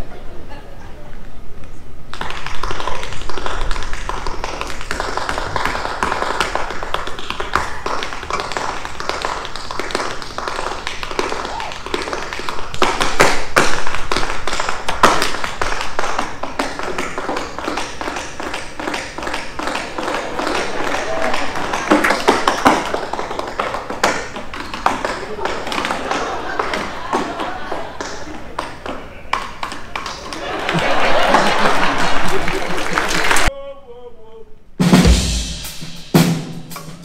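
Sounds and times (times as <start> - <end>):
tap shoes striking stage: 2.1 - 30.4.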